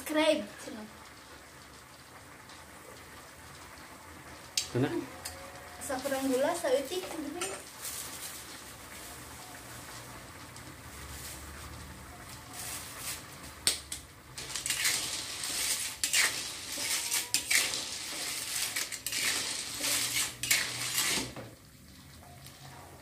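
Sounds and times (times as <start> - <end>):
sauce simmering: 0.0 - 23.0
metal spatula scraping wok: 14.3 - 21.6.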